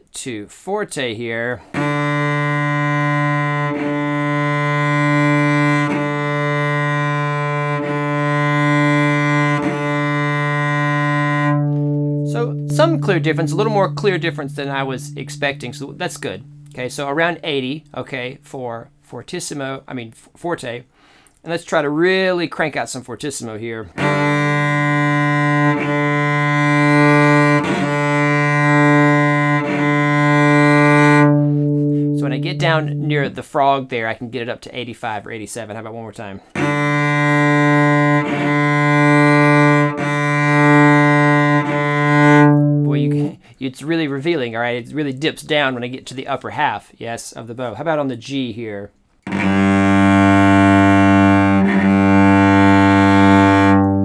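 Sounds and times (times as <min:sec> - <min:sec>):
cello bowed low note: 0:01.7 - 0:19.0, 0:23.9 - 0:33.4, 0:36.5 - 0:43.4, 0:49.3 - 0:54.0.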